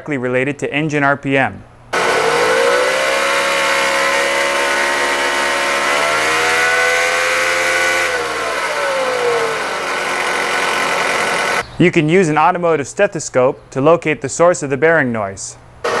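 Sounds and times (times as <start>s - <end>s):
loud bearing whine: 1.9s - 11.6s
car engine running: 2.0s - 11.6s.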